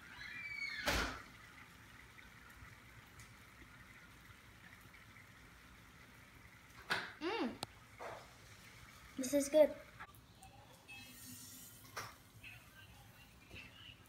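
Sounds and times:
loud gush of bubbles: 0.0 - 1.9
liquid bubbling in a glass pitcher: 0.0 - 12.4.

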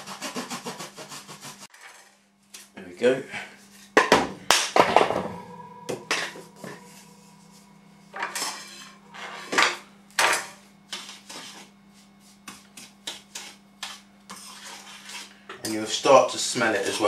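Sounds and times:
steady low hum: 2.8 - 12.4.

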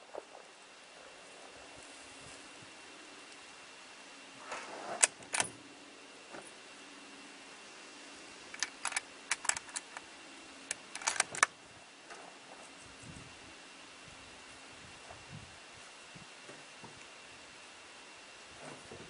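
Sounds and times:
sharp clicks and light rattles: 8.5 - 11.5.

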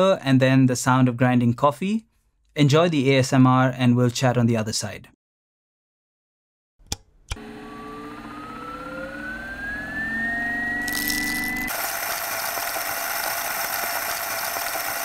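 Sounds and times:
grinder motor whine: 7.4 - 15.0
coffee beans grinding: 10.8 - 15.0.

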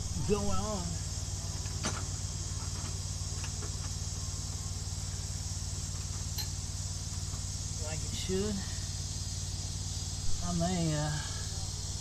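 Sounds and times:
insects chirring: 0.0 - 12.0
low mechanical drone: 0.0 - 12.0.

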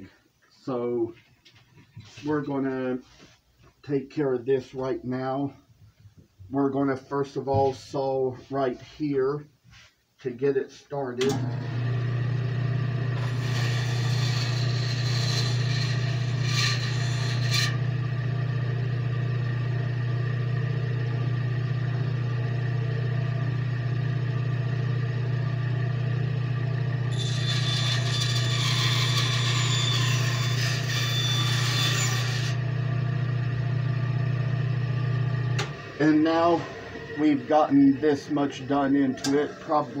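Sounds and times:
bandsaw motor hum: 11.2 - 40.0
saw blade cutting wood: 13.2 - 17.8, 27.1 - 32.6.

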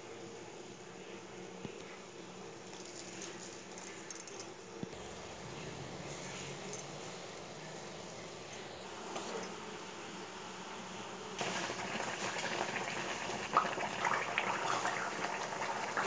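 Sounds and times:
paste bubbling in a pan: 11.4 - 16.0.

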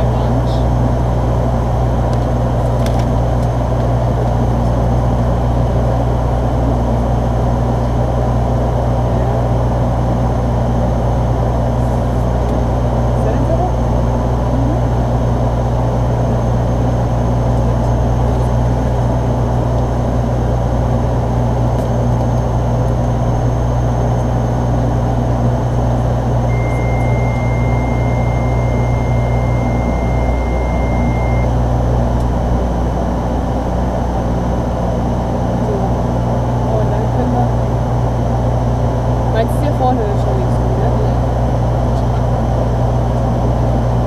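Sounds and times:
propeller aircraft engines droning: 0.0 - 44.0
steady high tone: 26.4 - 34.4.

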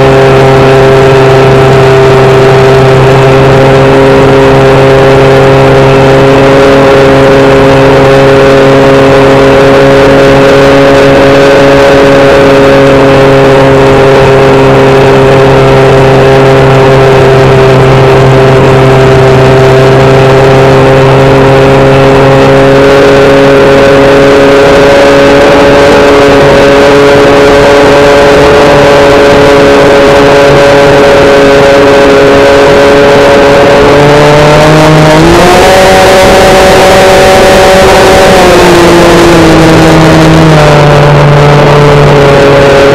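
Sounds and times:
model plane motor droning: 0.0 - 42.9.

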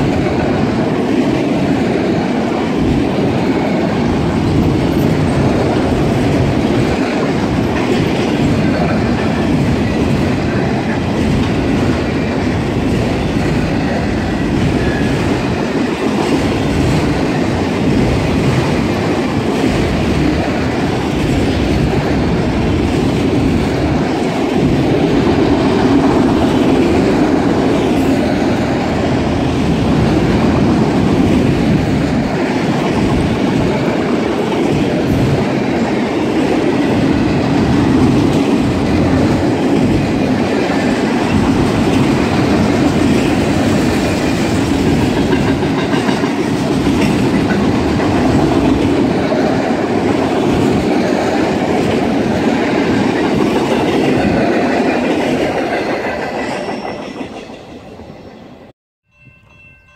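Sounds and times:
freight train wheels rumbling: 0.0 - 58.7.

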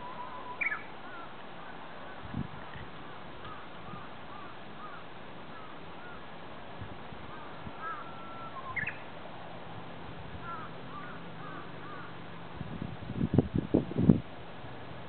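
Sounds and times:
bird whistle: 0.0 - 0.9, 7.8 - 9.0
songbirds chirping: 0.0 - 2.3, 7.2 - 9.2.

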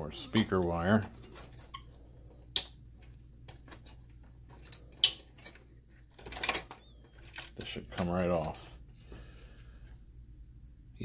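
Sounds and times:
metal bracket clicking and rattling: 4.5 - 8.6.

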